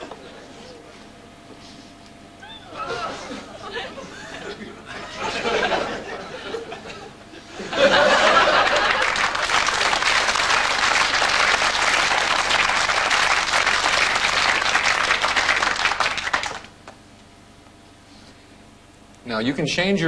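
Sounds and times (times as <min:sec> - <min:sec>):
audience applauding: 0:08.0 - 0:16.8.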